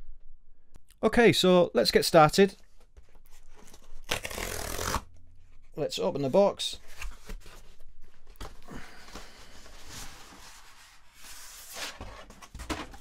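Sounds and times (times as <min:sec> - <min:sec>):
cardboard tearing and scraping: 0:03.6 - 0:05.1.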